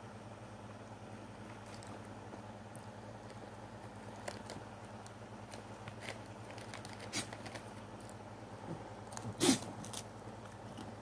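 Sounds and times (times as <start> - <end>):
dog crunching dry biscuits: 2.7 - 8.2.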